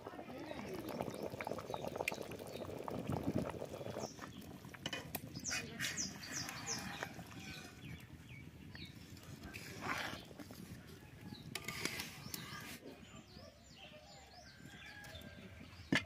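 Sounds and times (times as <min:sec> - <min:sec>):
small birds chirping: 0:00.2 - 0:16.0
metal utensils scraping a pot: 0:04.8 - 0:07.7, 0:09.3 - 0:10.6, 0:11.4 - 0:12.8.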